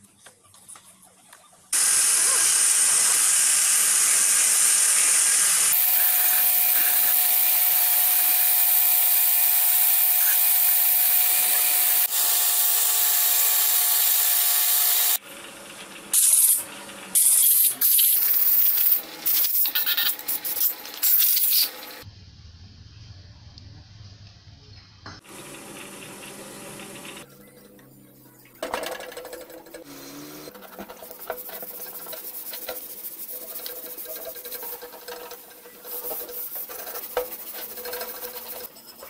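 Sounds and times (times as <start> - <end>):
pressure washer spray hissing: 1.8 - 7.2.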